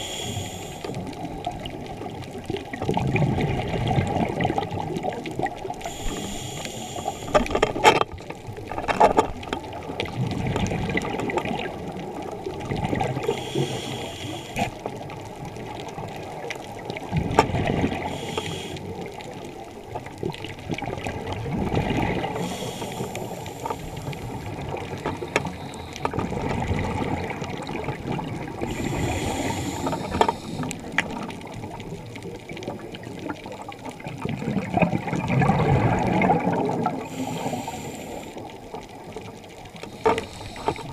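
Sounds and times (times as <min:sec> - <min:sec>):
regulator inhale hiss: 0:00.0 - 0:01.3, 0:05.7 - 0:07.8, 0:13.2 - 0:14.8, 0:18.0 - 0:19.3, 0:22.2 - 0:26.3, 0:28.5 - 0:31.3, 0:37.0 - 0:38.7, 0:39.8 - 0:40.9
exhaled air bubbling: 0:00.0 - 0:40.9.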